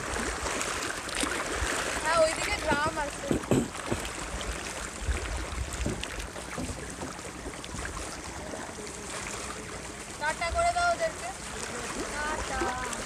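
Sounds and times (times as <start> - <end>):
wind rumbling on microphone: 0.0 - 7.1
water lapping at shore: 0.0 - 13.0.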